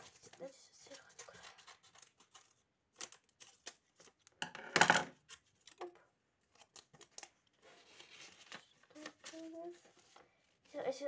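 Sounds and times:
paper rustling: 0:00.0 - 0:04.2, 0:05.2 - 0:11.0
scissors snipping paper: 0:00.0 - 0:04.3.

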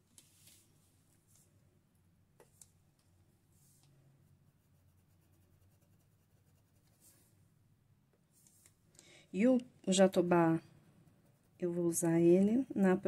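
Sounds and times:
paintbrush scratching on cloth: 0:03.5 - 0:07.4, 0:11.0 - 0:11.9.

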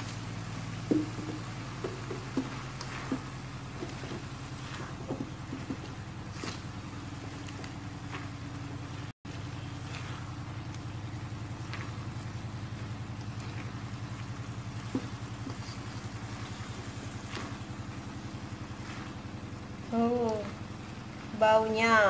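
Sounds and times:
spatula scraping a wok: 0:00.0 - 0:07.5, 0:14.8 - 0:19.5
low pulsing motor hum: 0:00.0 - 0:22.0.

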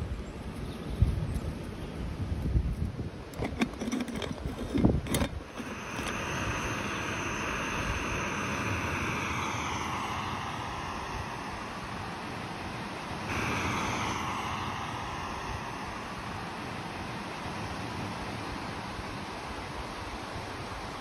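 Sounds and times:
wind rumbling on microphone: 0:00.0 - 0:21.0
gas stove hissing: 0:03.3 - 0:21.0
moka pot clicks and knocks: 0:03.4 - 0:06.2.

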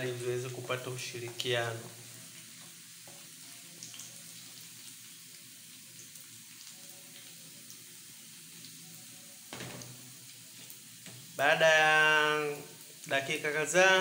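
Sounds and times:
onions sizzling in oil: 0:00.0 - 0:14.0.

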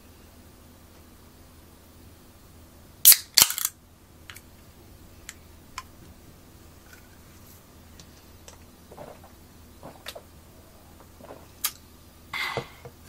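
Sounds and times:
drink can cracking open: 0:03.1 - 0:04.4.

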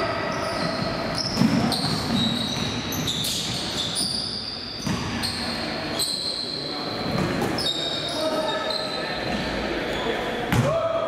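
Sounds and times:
sneakers squeaking on floor: 0:00.0 - 0:10.6
basketball bouncing: 0:00.6 - 0:03.6, 0:04.8 - 0:05.2
players' voices: 0:04.9 - 0:11.0.

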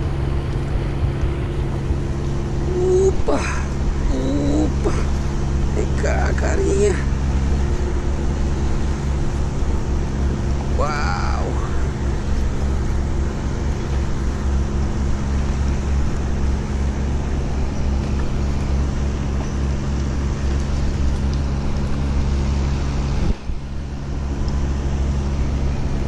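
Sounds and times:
low engine hum: 0:00.0 - 0:26.0.

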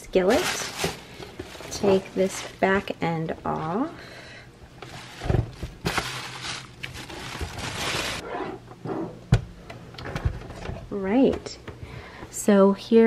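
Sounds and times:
packaging rustling and scraping: 0:00.3 - 0:02.7, 0:04.8 - 0:08.6.

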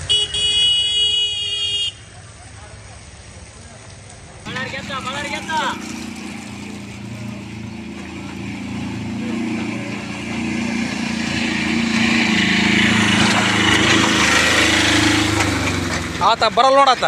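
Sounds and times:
truck engine running: 0:04.4 - 0:17.0.

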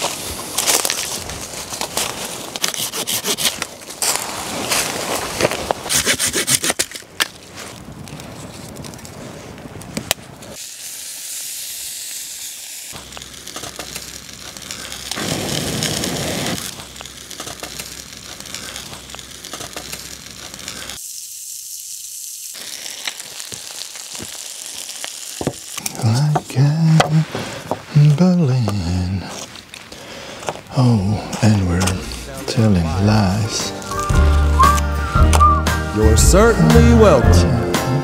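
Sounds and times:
wood fire crackling: 0:00.0 - 0:37.5
hand saw cutting branch: 0:02.6 - 0:04.2, 0:05.9 - 0:07.0
breath blown into fire: 0:14.7 - 0:16.8.

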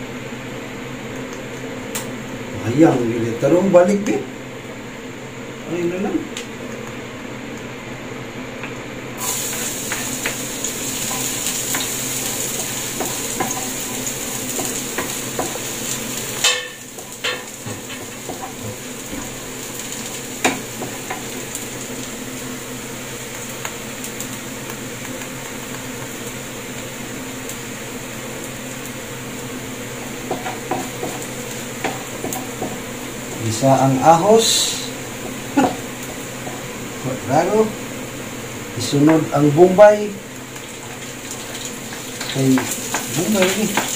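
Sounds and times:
garlic sizzling in oil: 0:09.2 - 0:43.9.

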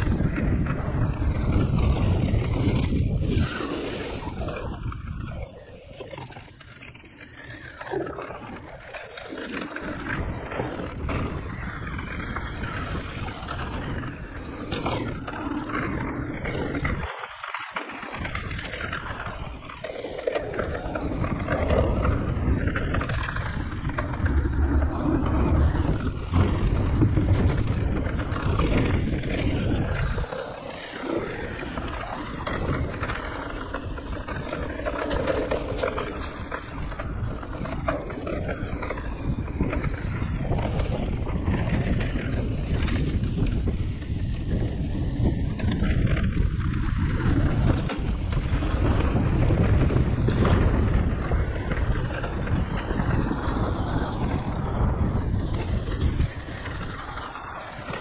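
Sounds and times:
bike tyres rumbling on trail: 0:00.0 - 0:58.0
wind buffeting microphone: 0:00.0 - 0:58.0.

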